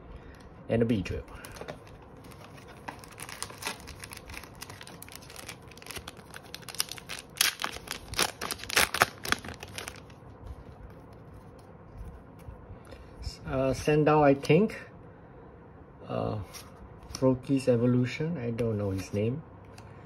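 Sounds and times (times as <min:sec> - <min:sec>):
foil wrapper tearing and crinkling: 0:01.4 - 0:10.2.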